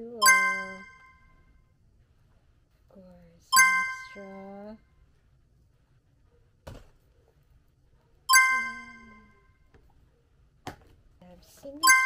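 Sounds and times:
bright chime ding: 0:00.2 - 0:01.2, 0:03.6 - 0:04.4, 0:08.3 - 0:09.4.

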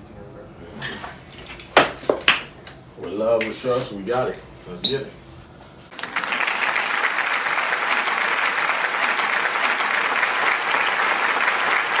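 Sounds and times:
crowd applause: 0:05.9 - 0:12.0.

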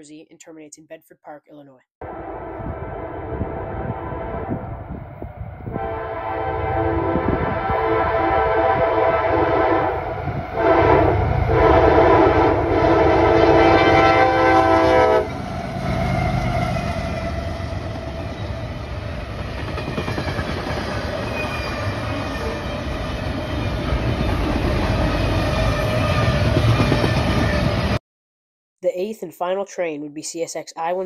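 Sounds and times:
locomotive air horn: 0:02.0 - 0:05.0, 0:05.6 - 0:15.4
train wheels rumbling on rails: 0:13.9 - 0:28.0.

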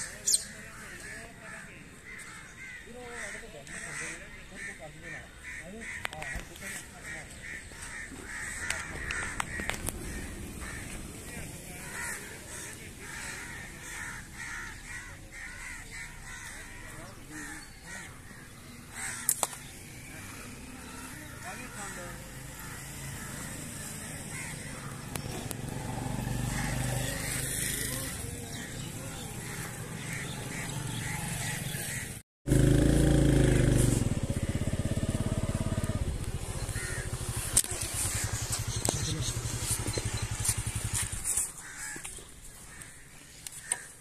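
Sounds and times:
crows cawing: 0:00.0 - 0:44.0
small engine puttering: 0:29.4 - 0:42.1.

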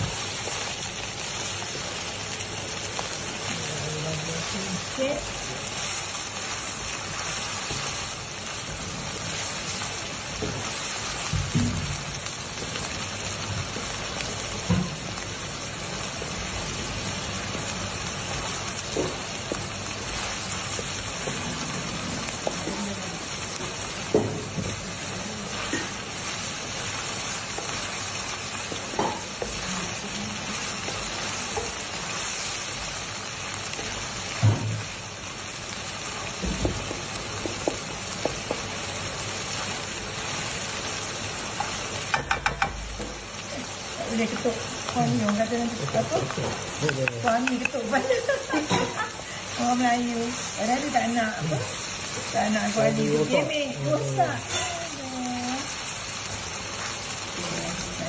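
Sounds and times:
food sizzling in a wok: 0:00.0 - 0:58.0
knocks against pan: 0:42.1 - 0:43.1.

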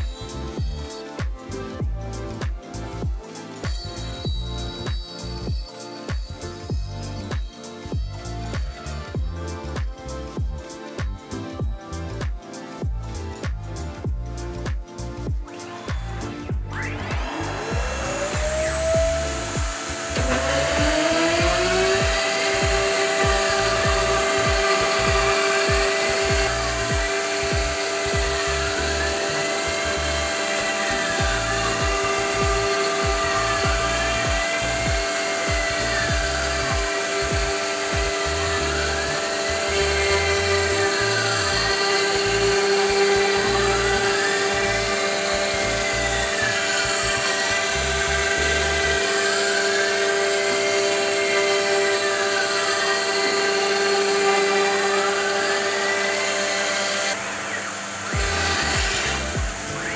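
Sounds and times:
router spindle high whine: 0:00.0 - 0:59.9
whine rising and falling in pitch: 0:14.5 - 0:59.9.

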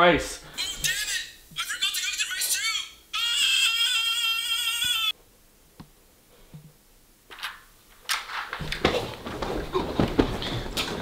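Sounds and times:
man wailing: 0:00.6 - 0:05.2
bedding rustling and knocking: 0:08.2 - 0:11.0.

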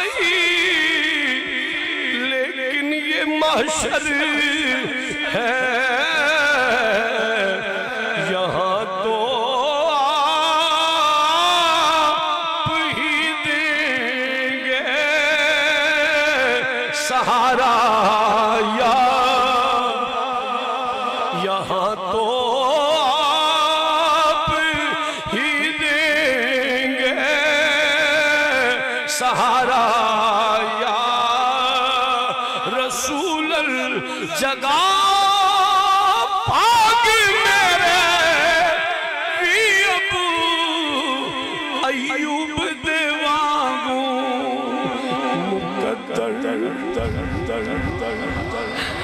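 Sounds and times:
man singing through a pa system: 0:00.0 - 0:49.0.

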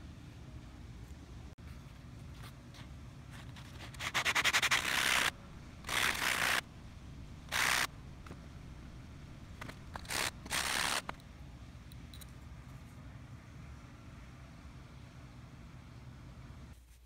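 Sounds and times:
metal ring scrubbing on sanding sponge: 0:03.9 - 0:11.1.

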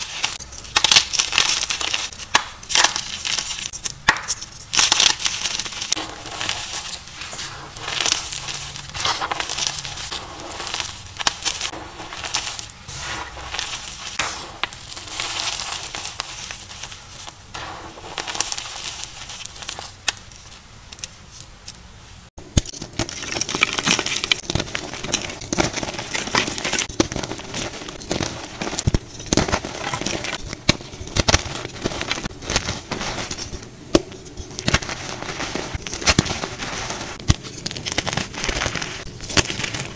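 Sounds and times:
chalk crunching by hand: 0:00.0 - 0:19.9.

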